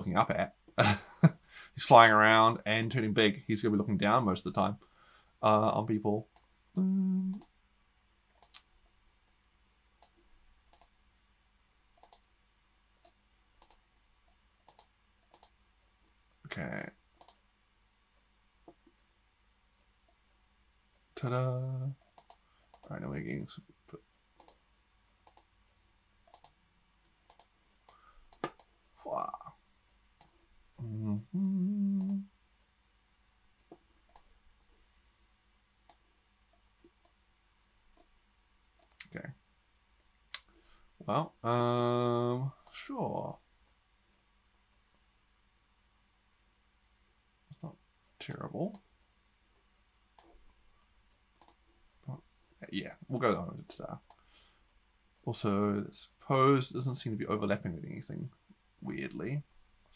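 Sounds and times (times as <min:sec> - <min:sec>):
man humming: 0:06.8 - 0:07.4, 0:30.8 - 0:32.3
faint computer mouse clicks: 0:10.0 - 0:10.9, 0:12.0 - 0:12.3, 0:14.7 - 0:15.6, 0:17.2 - 0:17.4, 0:22.2 - 0:22.9, 0:24.4 - 0:24.6, 0:25.2 - 0:25.5, 0:26.3 - 0:28.7, 0:51.4 - 0:51.6.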